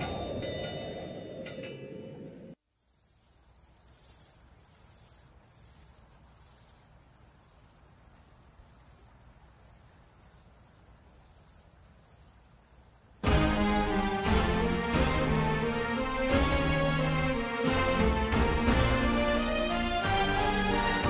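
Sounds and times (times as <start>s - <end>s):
crickets chirring: 2.6s - 13.3s
loud music: 13.2s - 21.0s.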